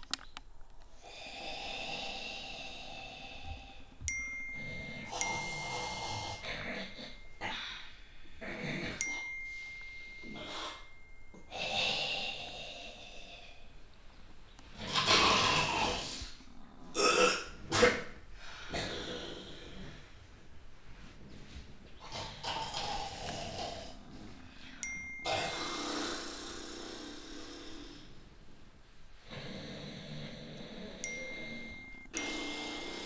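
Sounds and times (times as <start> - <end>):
person breathing heavily and grunting: 1.0 - 4.0, 4.6 - 13.6, 29.3 - 33.0.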